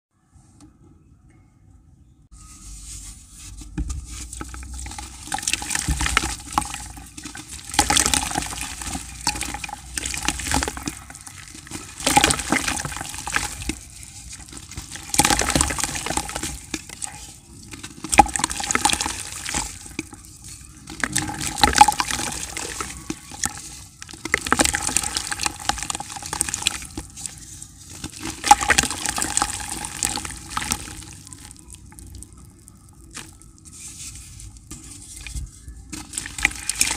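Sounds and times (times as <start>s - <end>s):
gritty dirt crumbling: 3.7s - 36.9s
splashing in bucket of water: 4.5s - 32.2s, 35.9s - 36.9s.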